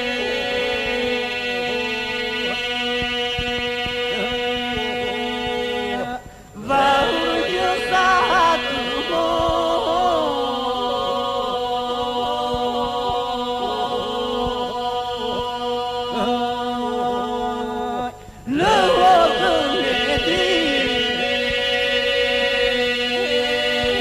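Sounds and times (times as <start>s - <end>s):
held vocal drone: 0.0s - 24.0s
men singing unaccompanied: 0.0s - 24.0s.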